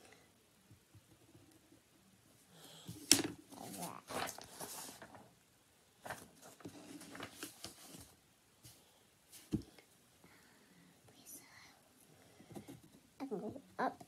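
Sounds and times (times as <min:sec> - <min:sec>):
paper rustling: 0:02.9 - 0:05.3, 0:06.0 - 0:09.6.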